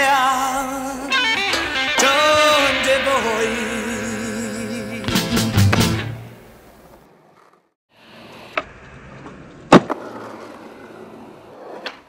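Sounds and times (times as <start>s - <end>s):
skateboard wheels rolling on pavement: 5.6s - 12.0s
skateboard clacking on ground: 8.4s - 12.0s.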